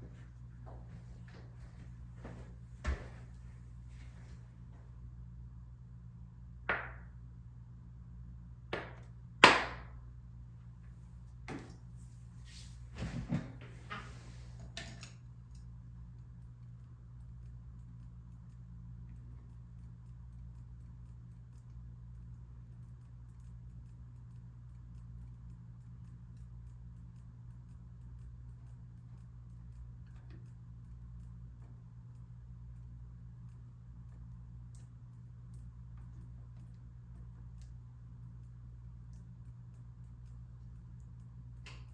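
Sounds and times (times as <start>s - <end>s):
low hum: 0.0s - 41.9s
faint regular ticking: 15.4s - 41.9s.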